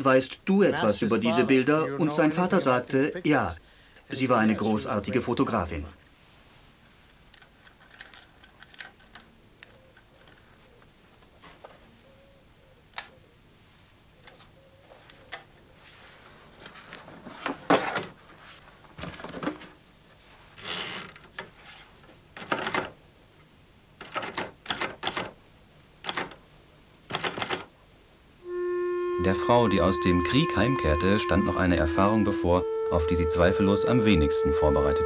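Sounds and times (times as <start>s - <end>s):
manual typewriter clacking: 22.4s - 22.9s, 24.0s - 25.4s, 26.0s - 26.4s, 27.1s - 27.7s.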